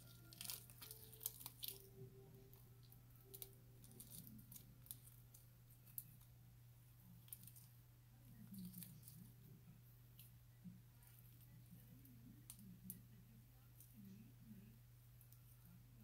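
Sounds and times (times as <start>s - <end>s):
slime clicks and crackles: 0.0s - 1.9s, 2.8s - 6.3s
low steady hum: 0.0s - 16.0s.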